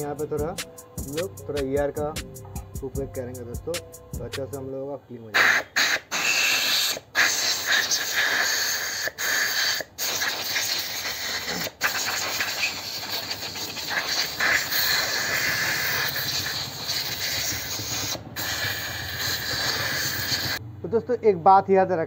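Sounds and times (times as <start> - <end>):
compressed air hissing: 0.0 - 2.4, 5.3 - 20.6.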